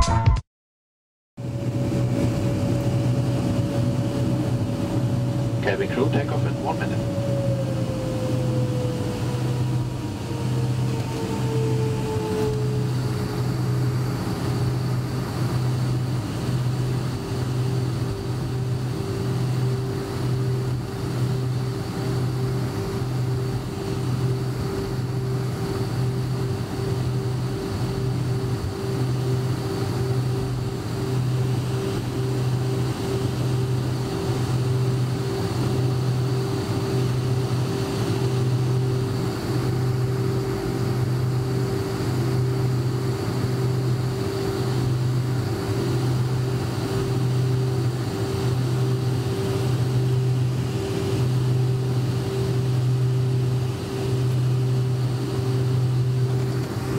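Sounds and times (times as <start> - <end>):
low throbbing drone: 1.4 - 16.7
jet engine whine: 1.4 - 56.9.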